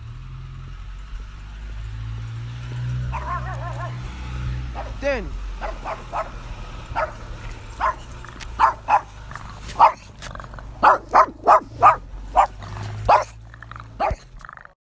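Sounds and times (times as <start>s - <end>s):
dog barking: 3.1s - 4.0s, 4.7s - 5.0s, 5.6s - 10.1s, 10.8s - 13.4s, 14.0s - 14.3s.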